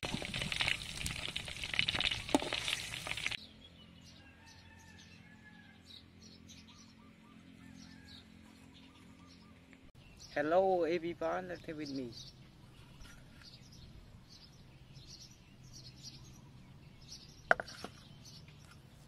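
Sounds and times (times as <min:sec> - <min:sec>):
meat deep-frying in hot oil: 0:00.0 - 0:03.4.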